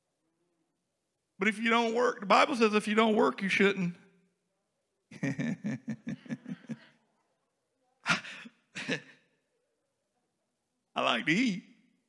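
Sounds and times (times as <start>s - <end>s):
man laughing: 5.1s - 6.8s, 8.1s - 9.2s.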